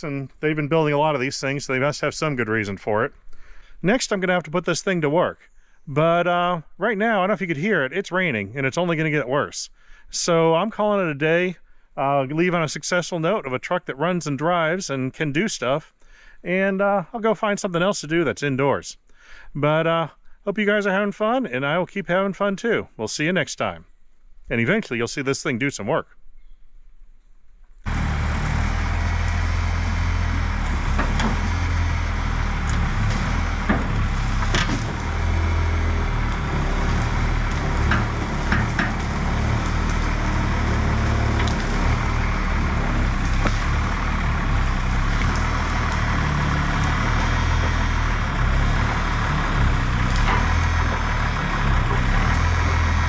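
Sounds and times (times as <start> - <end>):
wood and brush cracking: 27.6 - 53.0
diesel truck engine running: 27.8 - 53.0.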